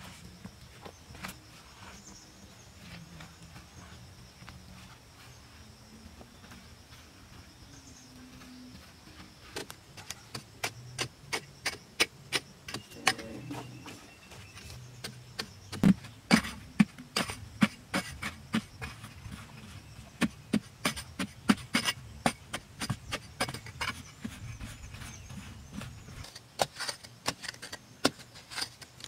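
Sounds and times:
hand tool chipping hard soil: 0:09.5 - 0:29.0.

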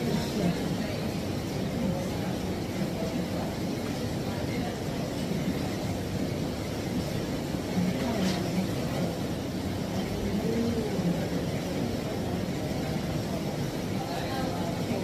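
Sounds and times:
faint voices: 0:00.0 - 0:15.0.

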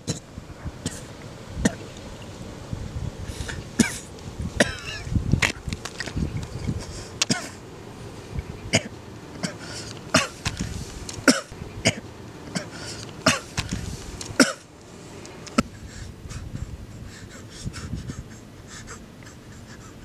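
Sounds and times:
man coughing hoarsely: 0:08.7 - 0:10.4, 0:11.2 - 0:13.6, 0:14.4 - 0:14.6.

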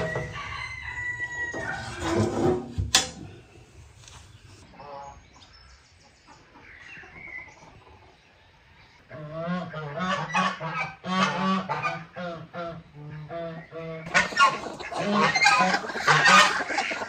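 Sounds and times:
rooster crowing: 0:00.0 - 0:02.0.

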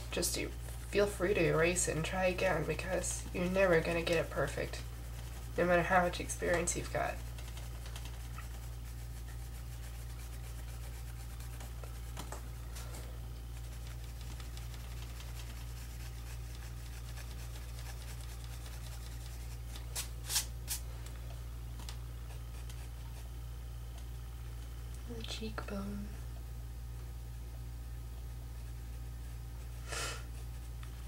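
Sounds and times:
steady low hum: 0:00.0 - 0:31.0
pencil scratching on paper: 0:00.2 - 0:12.2, 0:13.6 - 0:19.7.

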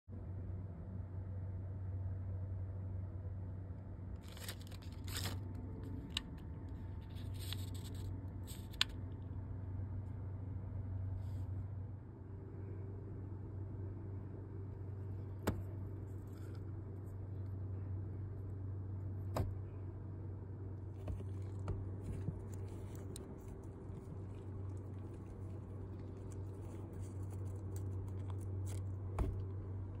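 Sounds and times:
steady low hum: 0:00.1 - 0:30.0
foil tape crinkling: 0:04.2 - 0:08.9, 0:21.0 - 0:29.5
tape and cables handled: 0:04.2 - 0:09.0, 0:20.9 - 0:30.0.

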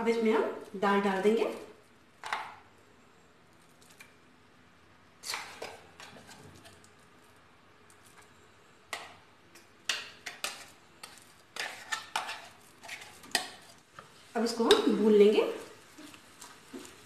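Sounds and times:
utensils tapping and scraping pan: 0:05.2 - 0:06.8, 0:08.9 - 0:15.1.

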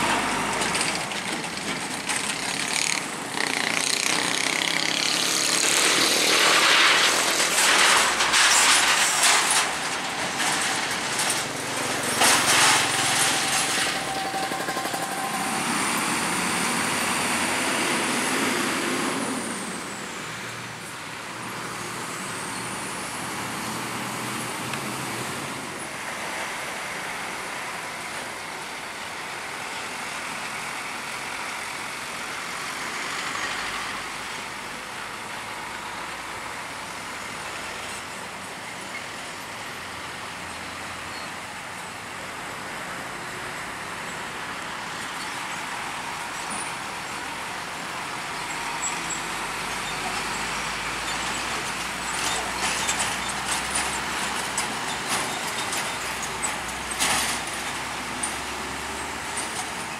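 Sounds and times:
heavy diesel trucks passing: 0:00.0 - 0:59.9
traffic noise: 0:00.0 - 0:59.9.

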